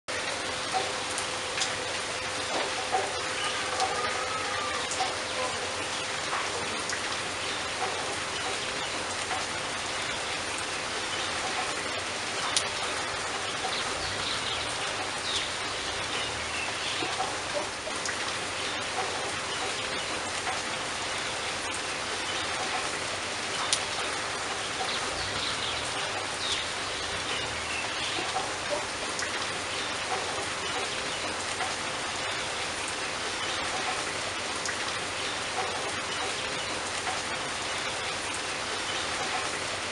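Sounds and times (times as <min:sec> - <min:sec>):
steady rain falling: 0:00.1 - 0:39.9
water drips splatting: 0:00.1 - 0:39.9.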